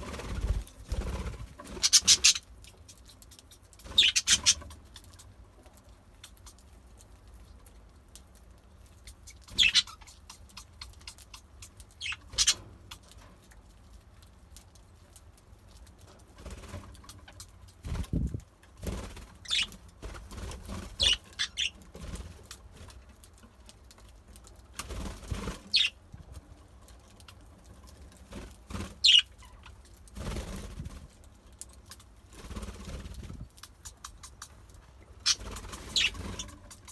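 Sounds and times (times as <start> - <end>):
wing flutters: 0.0 - 2.4, 30.1 - 31.1, 32.3 - 34.4, 35.2 - 36.9
budgerigars chirping: 1.7 - 2.4, 3.9 - 4.7, 9.3 - 11.4, 12.0 - 12.6, 19.4 - 19.7, 21.0 - 21.8, 25.7 - 26.0, 29.0 - 29.7, 35.2 - 36.6.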